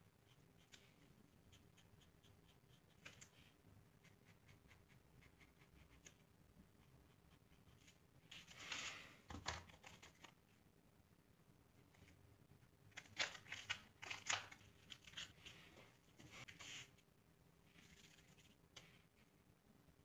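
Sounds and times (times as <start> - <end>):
pencil scratching on paper: 0.1 - 6.2
paper rustling: 17.7 - 18.9.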